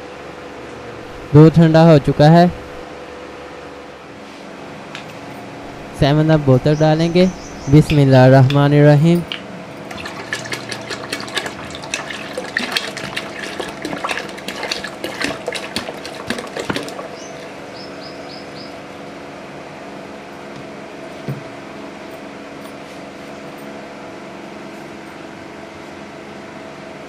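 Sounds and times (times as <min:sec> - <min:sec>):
fizzy drink pouring and fizzing: 0:09.9 - 0:17.6.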